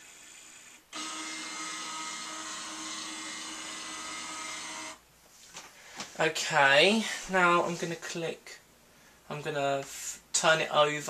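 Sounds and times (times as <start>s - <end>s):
faint steady hum: 0.0s - 11.0s
scanner motor whining: 0.1s - 5.0s.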